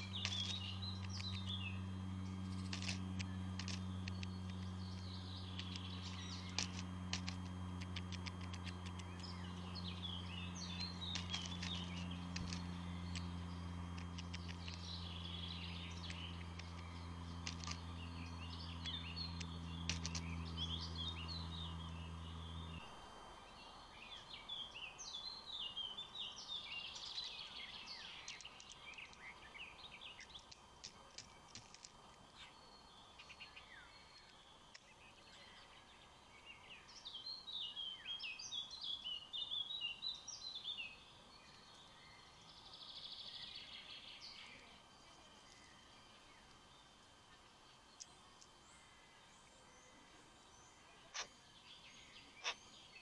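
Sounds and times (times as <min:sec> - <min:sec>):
sharp clicks: 0:00.0 - 0:21.3
birds chirping: 0:00.0 - 0:53.0
low mechanical hum: 0:00.0 - 0:53.0.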